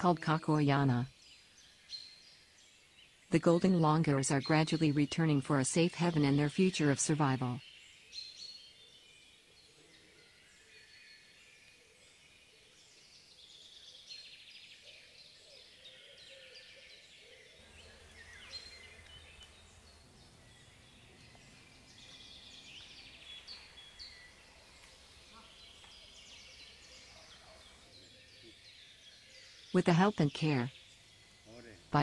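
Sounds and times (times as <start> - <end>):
birds chirping and trilling: 0.0 - 32.0
low steady hum: 17.6 - 28.0.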